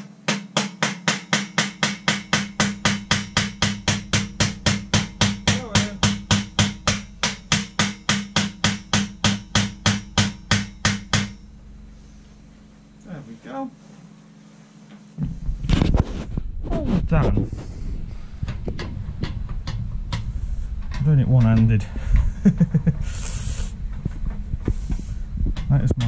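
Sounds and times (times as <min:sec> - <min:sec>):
small hammer tapping: 0:00.0 - 0:11.4.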